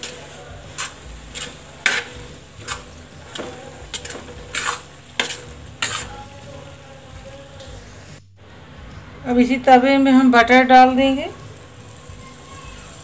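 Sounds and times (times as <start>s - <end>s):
metal spatula scraping pan: 0.0s - 8.2s
faint sizzle: 0.0s - 13.0s.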